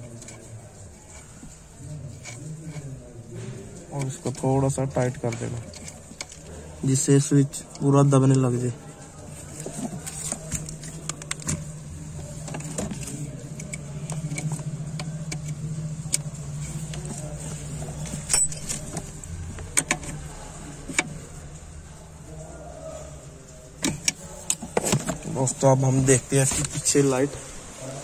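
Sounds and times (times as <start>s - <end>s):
plastic and metal clicks and rattles: 3.9s - 6.5s, 9.6s - 21.3s
steady low hum: 8.8s - 28.0s.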